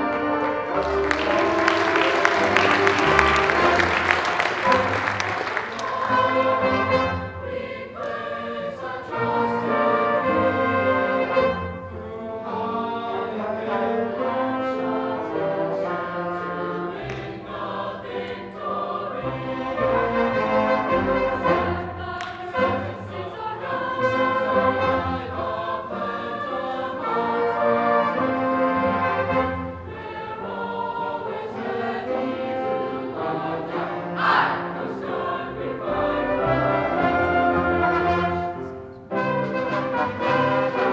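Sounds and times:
instrumental band: 0:00.0 - 0:07.8, 0:09.1 - 0:17.9, 0:26.8 - 0:30.9, 0:35.3 - 0:40.9
mixed choir singing: 0:00.0 - 0:40.9.

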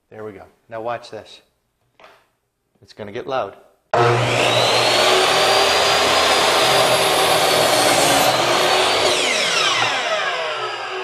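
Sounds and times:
miter saw whining: 0:04.0 - 0:11.0
saw blade cutting wood: 0:04.0 - 0:11.0.

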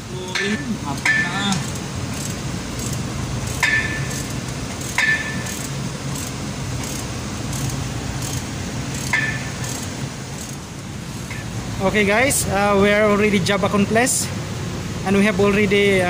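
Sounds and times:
steady low hum: 0:00.0 - 0:16.0
wrench clinking on metal bolts: 0:00.4 - 0:10.6.

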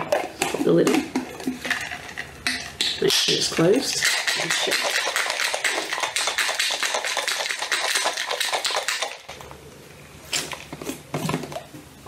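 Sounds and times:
ice rattling in metal mug: 0:01.3 - 0:09.4.

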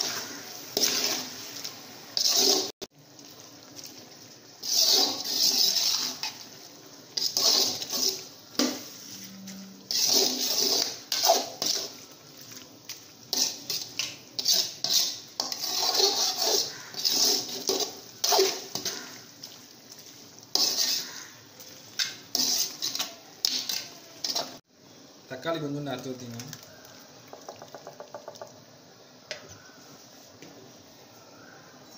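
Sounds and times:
metal ladle scraping pot: 0:02.2 - 0:02.7, 0:04.6 - 0:06.5, 0:07.1 - 0:12.1, 0:13.3 - 0:19.2, 0:20.0 - 0:24.6.

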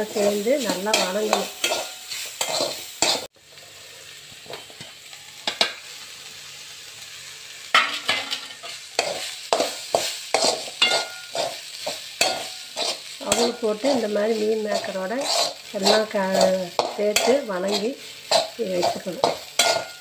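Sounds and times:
spatula scraping metal pan: 0:00.0 - 0:03.3, 0:07.8 - 0:20.0
frying sizzle: 0:00.0 - 0:20.0.

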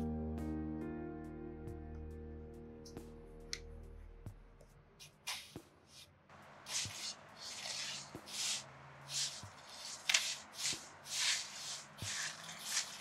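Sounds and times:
hands rubbing dough: 0:05.0 - 0:13.0.

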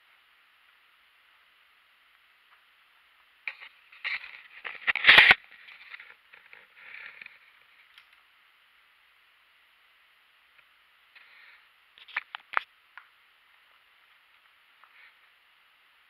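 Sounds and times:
steady hiss: 0:00.0 - 0:16.0
twigs crackling and scraping: 0:03.5 - 0:08.2, 0:11.2 - 0:12.7.

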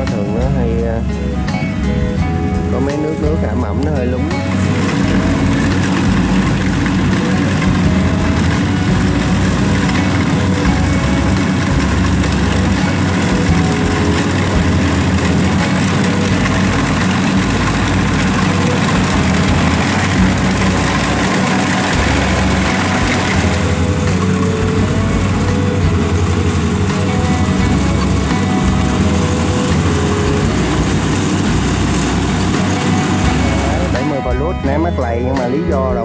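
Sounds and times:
combine harvester running: 0:00.0 - 0:36.0.

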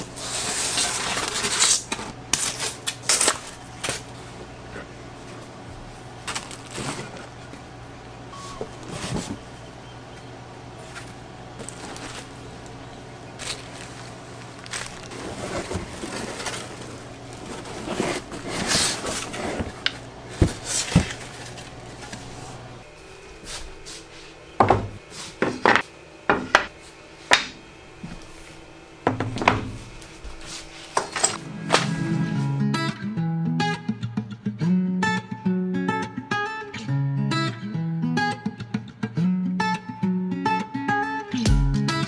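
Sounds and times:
cardboard and bubble wrap rustling: 0:00.0 - 0:07.7, 0:08.4 - 0:09.6, 0:10.7 - 0:24.1.

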